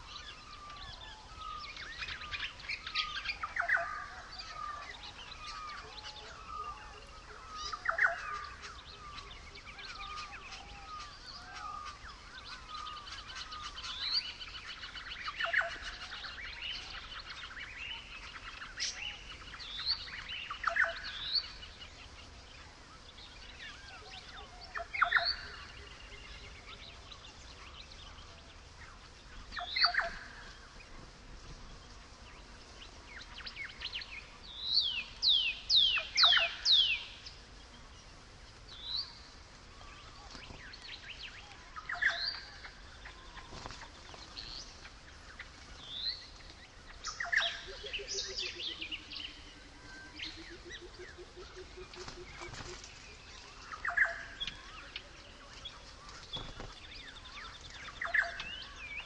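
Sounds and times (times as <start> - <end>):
faint steady hiss: 0.0 - 59.0
whistled bird calls: 29.5 - 30.4, 34.8 - 37.2, 47.0 - 55.1.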